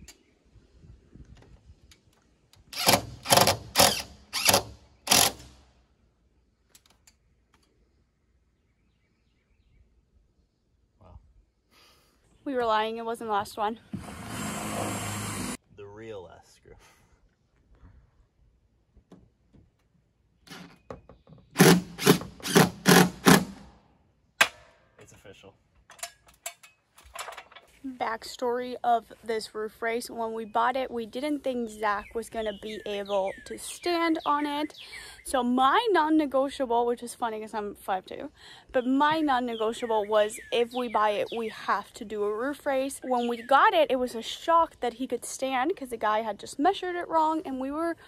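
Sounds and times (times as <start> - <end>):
impact driver driving screw: 2.8 - 5.5, 21.6 - 23.6
cordless drill whirring: 14.0 - 15.6, 21.6 - 23.6.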